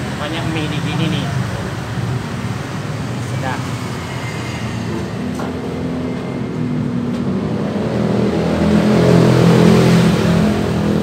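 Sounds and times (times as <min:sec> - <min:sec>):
vehicle engine passing by: 0:03.4 - 0:11.0.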